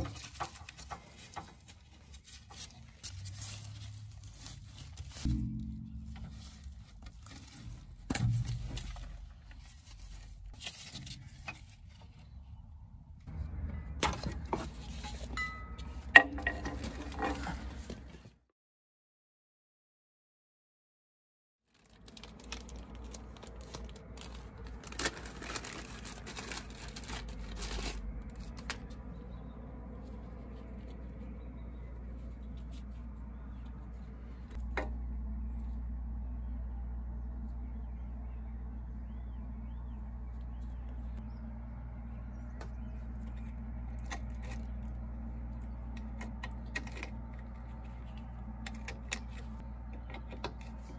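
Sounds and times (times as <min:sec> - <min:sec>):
crinkling and scratching of handled cable: 0:00.0 - 0:05.3, 0:06.0 - 0:12.4, 0:14.0 - 0:18.3, 0:21.6 - 0:29.3, 0:42.6 - 0:50.9
low rumble: 0:03.1 - 0:11.2, 0:21.8 - 0:50.9.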